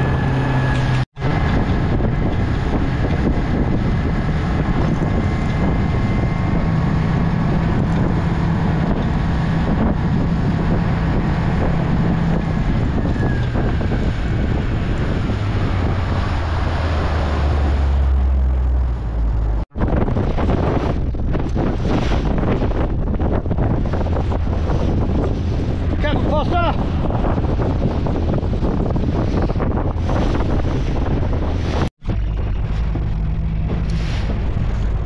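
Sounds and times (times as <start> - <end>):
motorboat engine running: 0.0 - 35.0
wind buffeting microphone: 0.0 - 35.0.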